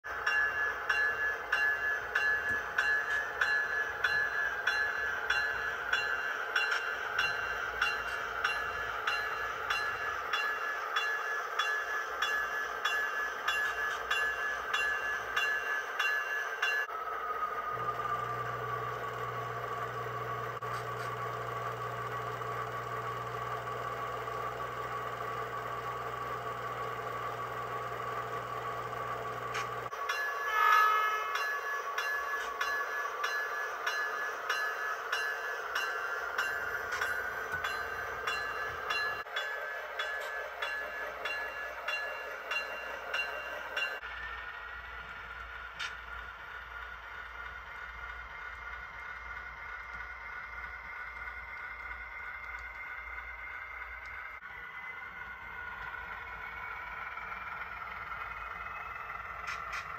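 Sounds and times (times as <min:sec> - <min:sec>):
locomotive bell ringing: 0:00.0 - 0:45.4.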